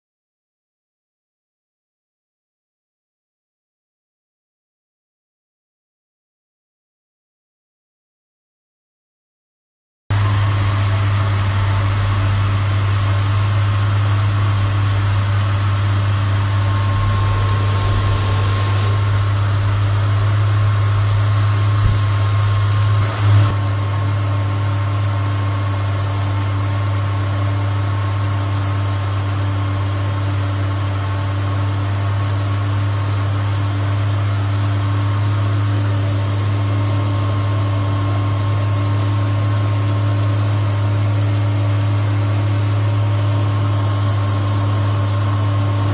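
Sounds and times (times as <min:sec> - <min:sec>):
coolant spray hiss: 0:10.2 - 0:22.5
saw humming: 0:10.2 - 0:23.5
high hiss: 0:16.4 - 0:20.7.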